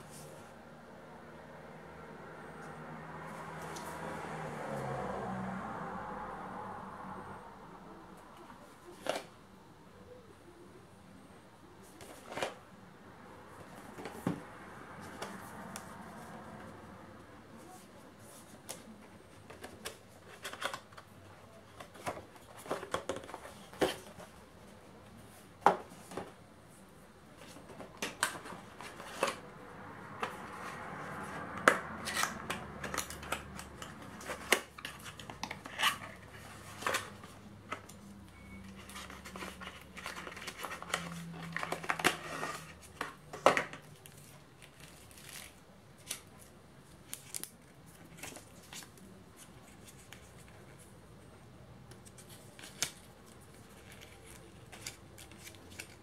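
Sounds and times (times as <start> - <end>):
cardboard and plastic handling: 8.4 - 9.4, 11.8 - 12.7, 13.5 - 16.7, 17.5 - 26.5, 27.3 - 56.0.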